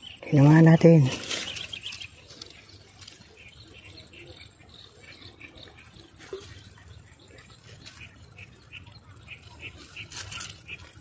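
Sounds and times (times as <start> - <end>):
birds chirping: 0.0 - 11.0
rustling: 0.9 - 3.4, 9.7 - 11.0.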